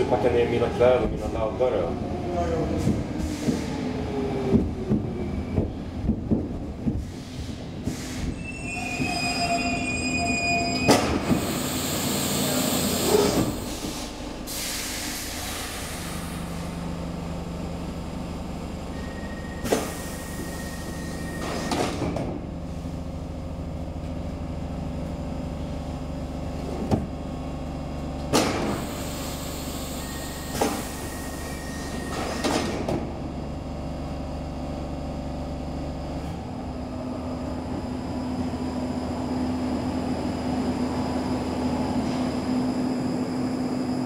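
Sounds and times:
subway car running on track: 0:00.0 - 0:44.0
wheels squealing shrilly: 0:08.4 - 0:11.0
short hisses: 0:11.5 - 0:16.4.

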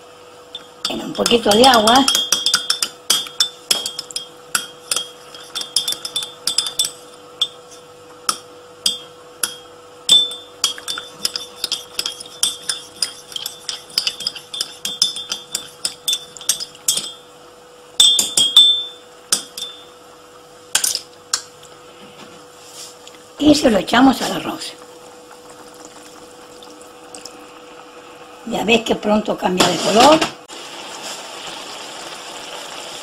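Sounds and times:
spoon clinking in ceramic cup: 0:00.6 - 0:07.6, 0:08.9 - 0:17.2.

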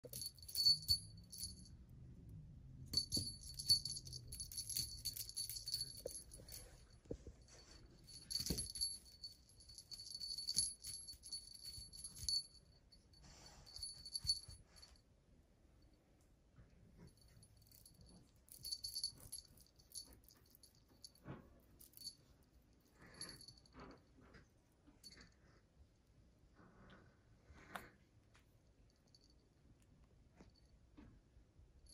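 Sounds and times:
small bell jingling: 0:00.0 - 0:01.8, 0:02.9 - 0:15.0, 0:17.0 - 0:24.0.

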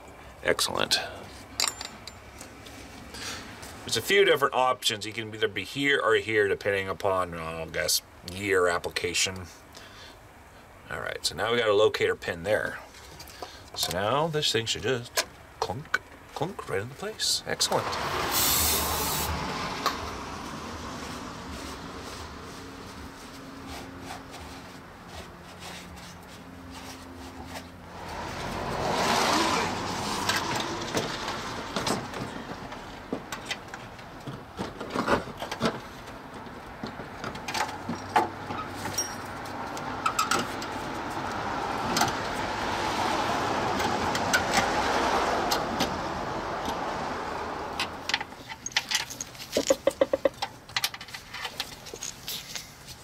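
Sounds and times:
hand tools clinking on metal: 0:01.6 - 0:02.3, 0:38.8 - 0:39.4
broad rushing noise: 0:17.5 - 0:32.7.

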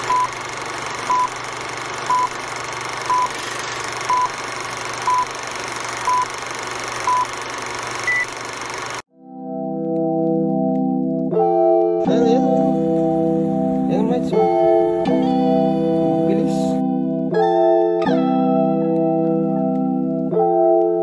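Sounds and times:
short beeps: 0:03.1 - 0:03.3
organ music: 0:09.1 - 0:21.0.

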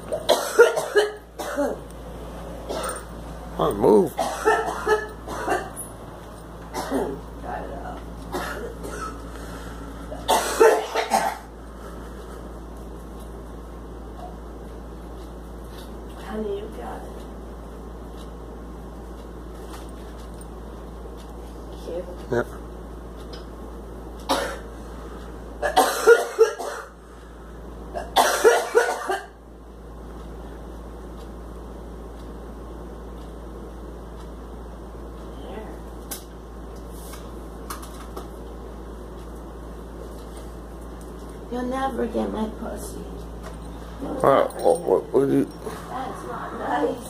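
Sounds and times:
girl coughing: 0:00.2 - 0:01.8, 0:02.7 - 0:03.1, 0:04.2 - 0:05.8, 0:06.7 - 0:07.2, 0:08.3 - 0:09.2, 0:10.2 - 0:11.5, 0:24.3 - 0:24.7, 0:25.6 - 0:26.9, 0:28.0 - 0:29.4.

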